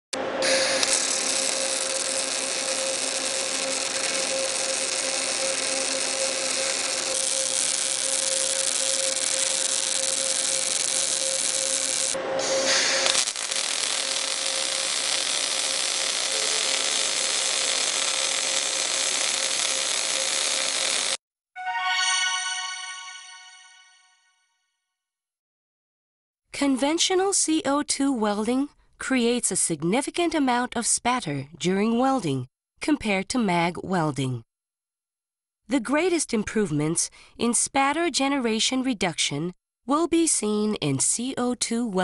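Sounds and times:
welding arc hissing crackle: 0.4s - 21.2s.

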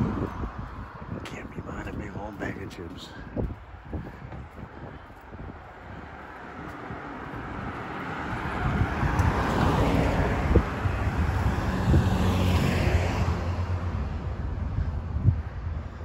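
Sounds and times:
car driving past: 6.4s - 14.8s.

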